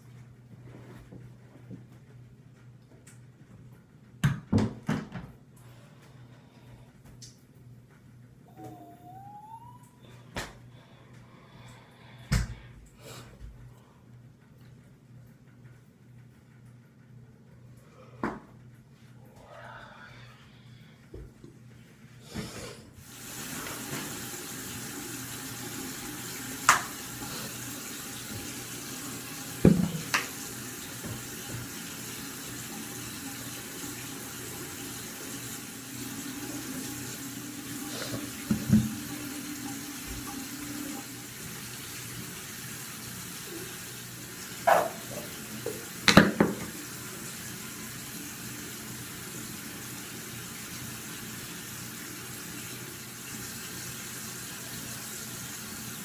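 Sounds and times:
tap running into sink: 26.6 - 27.0, 29.4 - 31.8, 38.0 - 40.5, 45.6 - 46.8.

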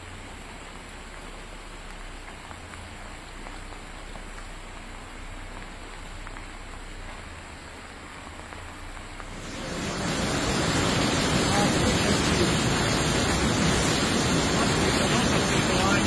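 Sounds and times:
floodwater rushing: 9.2 - 16.0.

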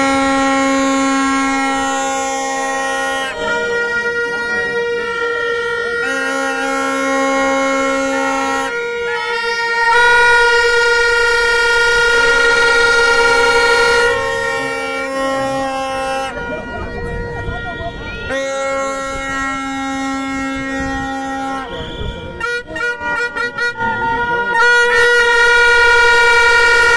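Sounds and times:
vuvuzelas blowing: 0.0 - 26.9.

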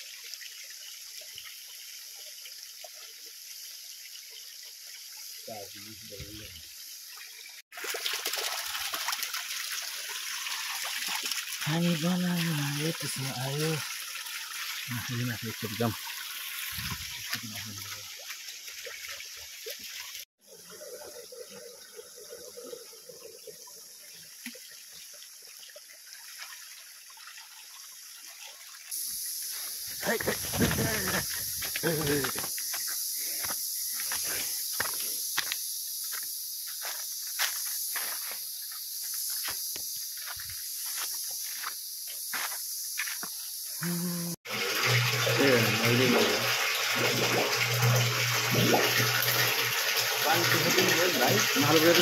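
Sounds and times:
water trickling into rocky pool: 0.0 - 52.0
water dripping: 7.1 - 20.3, 21.6 - 29.0, 44.6 - 52.0
steady hiss: 28.9 - 44.4.

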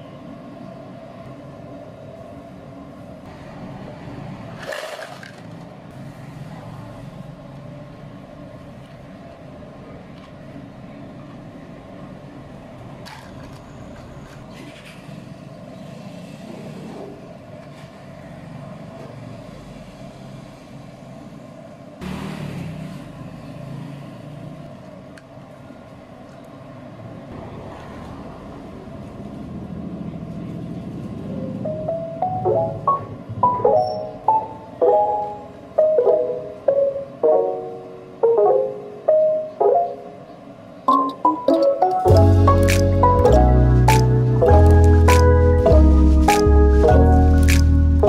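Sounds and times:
plastic cups and ice clattering: 4.6 - 5.7.

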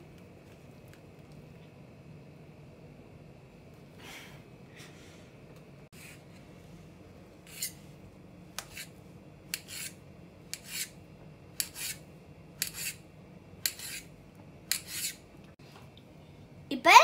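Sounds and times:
knife scrape: 6.0 - 6.3, 7.4 - 7.9, 8.6 - 11.0, 11.6 - 13.0, 13.6 - 15.3.

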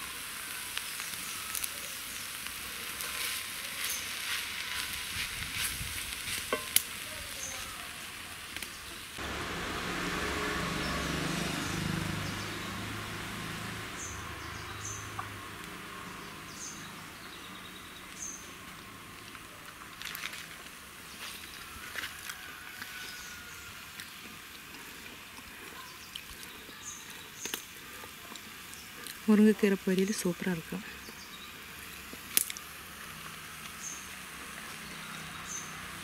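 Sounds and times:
crackling frying hiss: 0.0 - 36.0
wooden spoon scraping and tapping: 6.3 - 6.9.

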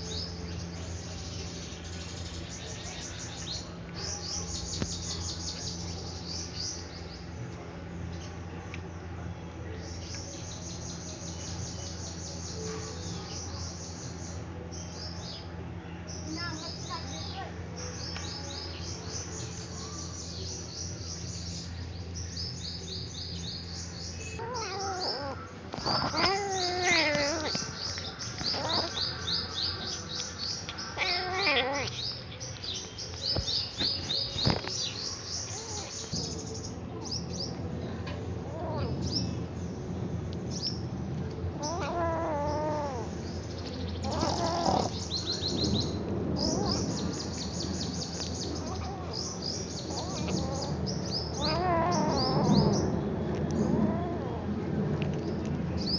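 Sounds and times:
kitten crying: 24.4 - 29.1, 30.9 - 32.0, 38.5 - 39.0, 41.6 - 43.1, 44.1 - 45.0, 49.9 - 52.7, 53.6 - 54.5.

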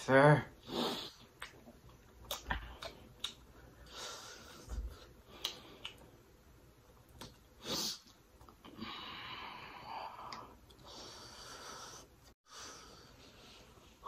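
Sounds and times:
person chewing: 1.2 - 3.6, 5.0 - 6.1
sharp mouth clicks: 2.2 - 3.4, 5.4 - 6.0
heavy breathing through nose: 3.6 - 6.0, 8.7 - 14.0.

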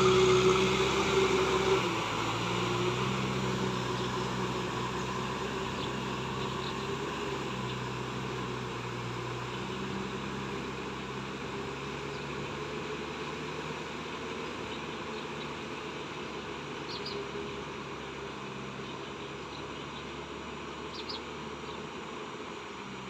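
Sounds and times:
rotavator churning through mud: 0.0 - 8.2
tractor diesel engine running: 0.0 - 23.0.

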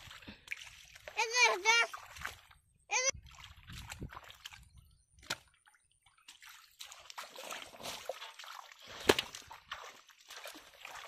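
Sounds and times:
sharp water splash: 0.0 - 2.5, 6.3 - 11.0
feet sloshing through water: 0.0 - 11.0.

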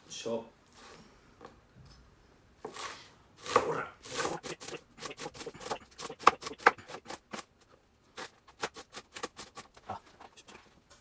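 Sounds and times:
knife chopping cabbage on board: 2.6 - 7.4, 8.2 - 9.7.

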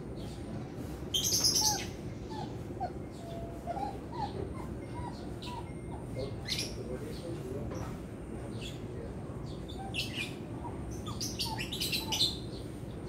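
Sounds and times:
dog whimpering: 2.3 - 6.6.

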